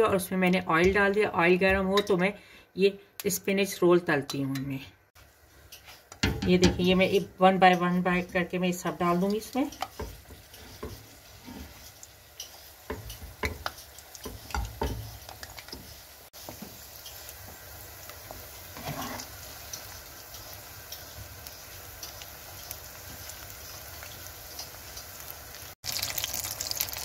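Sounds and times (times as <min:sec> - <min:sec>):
food sizzling in hot oil: 0:05.2 - 0:27.0
oil popping: 0:25.8 - 0:27.0.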